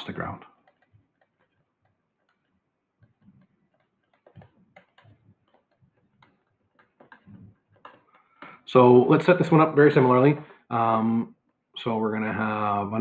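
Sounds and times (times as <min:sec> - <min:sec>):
stylus tapping on tablet: 0:00.5 - 0:08.6.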